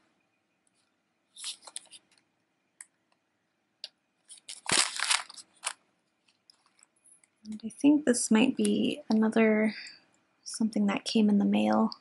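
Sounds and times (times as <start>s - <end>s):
paper rustling and crinkling: 0.7s - 2.2s, 4.2s - 6.8s.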